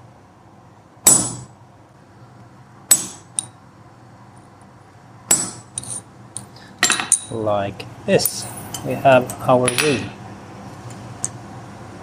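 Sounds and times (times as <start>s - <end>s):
hammer striking chisel on metal: 1.0s - 1.5s, 2.9s - 3.5s, 5.3s - 6.0s, 9.6s - 10.1s.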